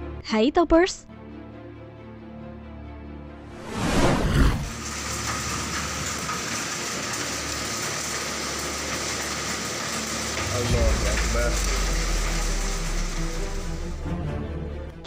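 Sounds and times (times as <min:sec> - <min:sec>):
hail pelting roofs and ground: 0:04.7 - 0:14.1
loud sweeping whoosh: 0:10.4 - 0:14.8.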